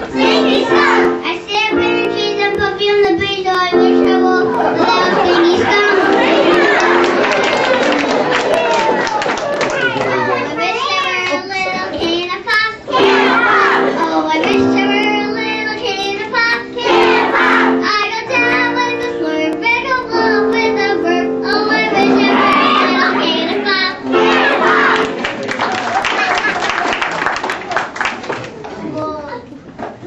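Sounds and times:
girl singing into microphone: 0:00.0 - 0:07.1, 0:10.4 - 0:25.1.

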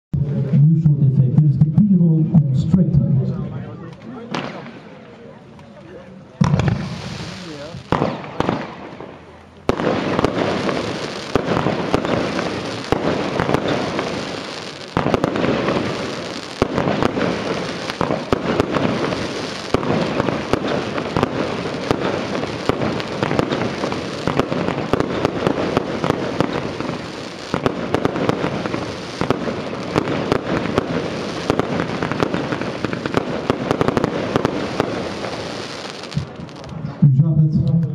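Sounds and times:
firework bangs and bursts: 0:04.2 - 0:05.0, 0:06.4 - 0:36.8.

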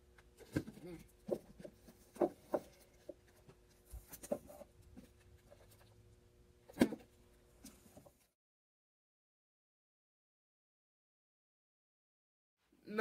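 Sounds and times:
books knocking and rustling: 0:00.4 - 0:03.2.

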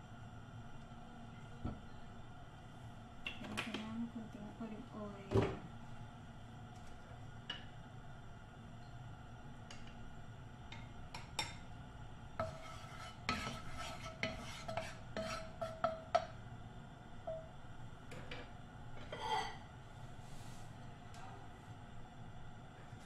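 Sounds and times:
wooden spatula stirring oil: 0:12.4 - 0:16.4.

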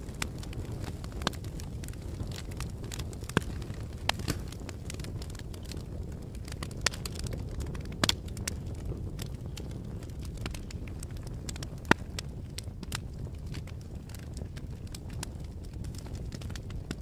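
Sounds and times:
fire popping and snapping: 0:00.0 - 0:17.0
fire rumbling: 0:00.0 - 0:17.0.

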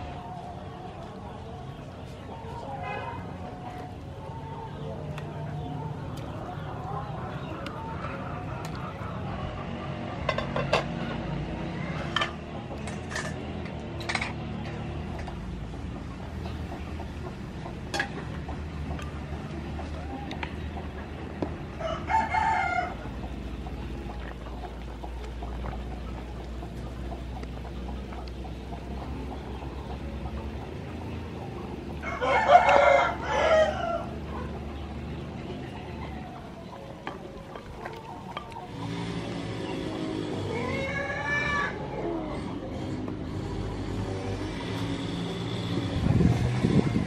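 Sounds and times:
rooster crowing: 0:21.8 - 0:23.0, 0:32.0 - 0:34.2.

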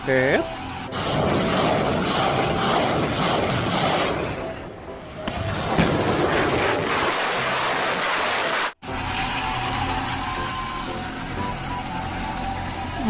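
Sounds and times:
rockets launching in salvo: 0:00.9 - 0:08.8.

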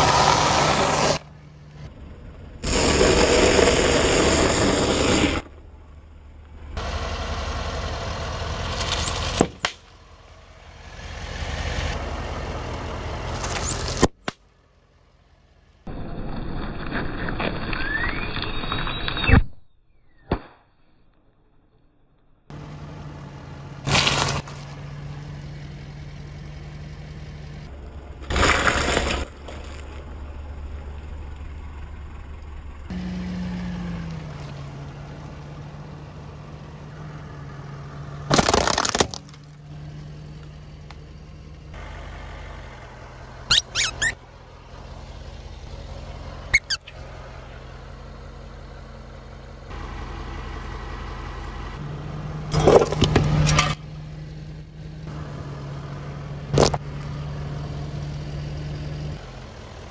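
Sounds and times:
car engine idling: 0:00.0 - 0:15.9, 0:22.5 - 0:28.3, 0:29.4 - 0:38.4, 0:39.2 - 0:59.9
objects cracking under a tyre: 0:23.8 - 0:24.8, 0:27.8 - 0:31.5, 0:38.3 - 0:39.6, 0:52.5 - 0:53.8, 0:56.5 - 0:56.9.

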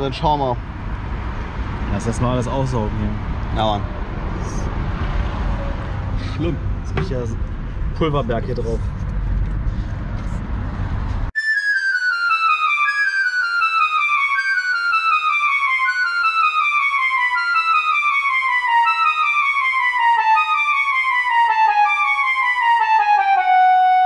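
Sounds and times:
falling musical scale: 0:11.4 - 0:24.0.

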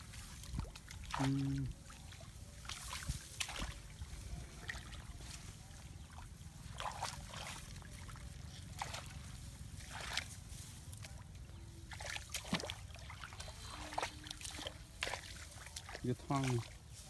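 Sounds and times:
rustling of rice plants: 0:00.0 - 0:17.0
splashes of muddy water: 0:00.0 - 0:17.0.

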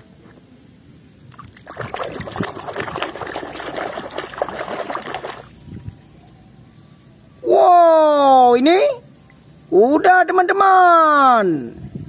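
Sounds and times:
water splashing in a basin: 0:01.3 - 0:06.0.

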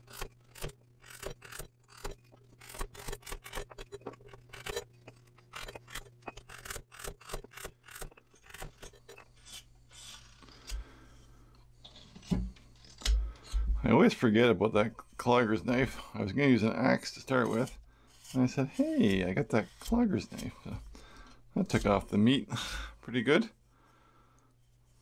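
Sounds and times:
carving knife shaving wood: 0:00.0 - 0:13.7, 0:17.0 - 0:20.9, 0:21.6 - 0:22.2
knife cutting wood cracks: 0:05.5 - 0:10.9.

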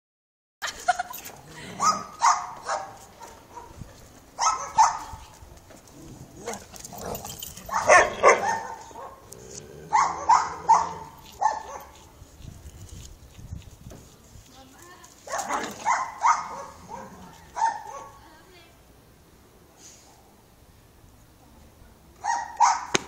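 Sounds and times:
dog barking: 0:01.8 - 0:03.8, 0:04.4 - 0:05.2, 0:07.7 - 0:09.2, 0:09.9 - 0:12.0, 0:15.3 - 0:18.2, 0:22.2 - 0:23.0.

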